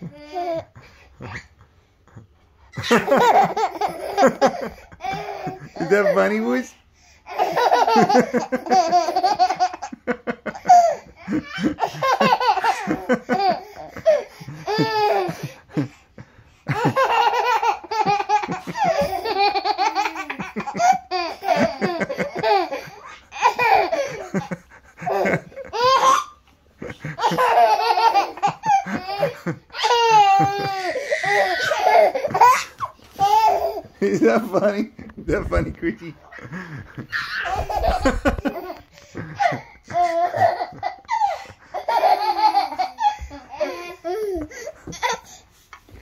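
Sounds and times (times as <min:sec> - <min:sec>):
baby laughing: 0:00.0 - 0:06.6, 0:07.3 - 0:15.9, 0:16.7 - 0:34.6, 0:35.3 - 0:45.4.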